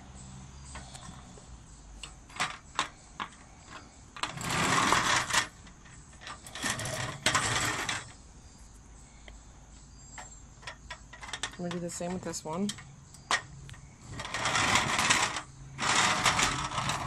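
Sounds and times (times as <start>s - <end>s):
scraping and rubbing of metal table: 2.3s - 8.2s, 14.0s - 17.0s.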